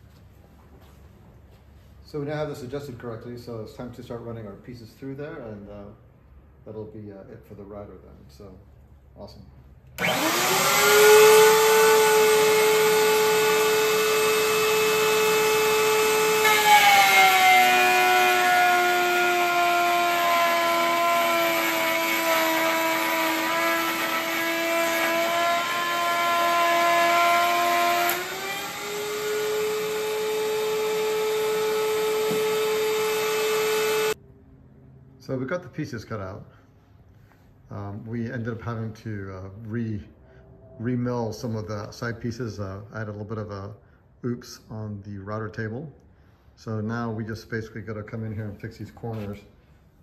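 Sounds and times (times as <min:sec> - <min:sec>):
router cutting wood: 0:10.0 - 0:34.2
router high whine: 0:10.0 - 0:34.2.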